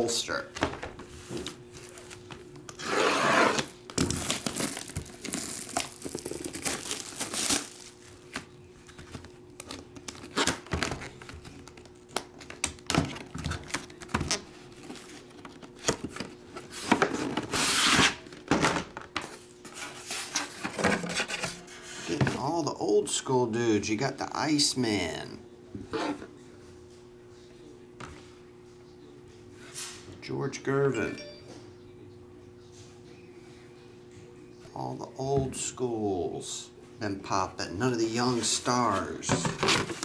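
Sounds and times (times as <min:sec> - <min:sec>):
shrink wrap tearing and crinkling: 0:01.8 - 0:08.3, 0:09.2 - 0:12.8.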